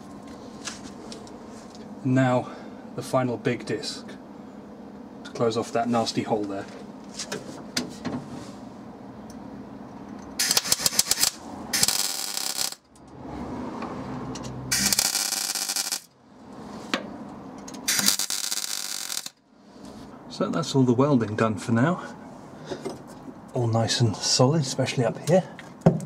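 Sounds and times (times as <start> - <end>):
electric welder crackling: 10.4 - 13.1, 14.7 - 16.2, 17.8 - 19.4.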